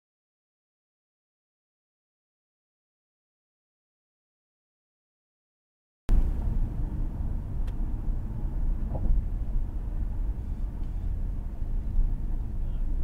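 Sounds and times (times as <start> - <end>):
car road rumble: 6.1 - 13.0.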